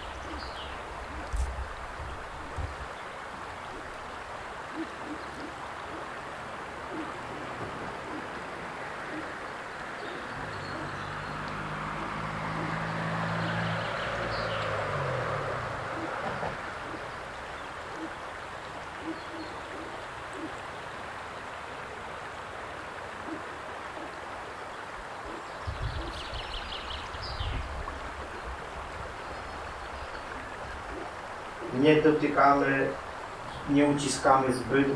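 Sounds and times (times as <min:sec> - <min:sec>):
river rushing: 0:00.0 - 0:34.9
low rumbles: 0:05.4 - 0:19.0.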